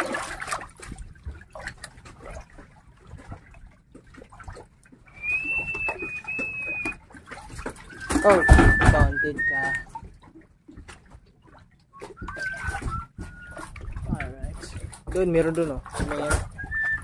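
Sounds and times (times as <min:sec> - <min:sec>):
water splashing and dripping: 0:00.0 - 0:17.0
high whistle: 0:05.2 - 0:07.0, 0:08.0 - 0:09.8, 0:12.2 - 0:13.7, 0:16.6 - 0:17.0.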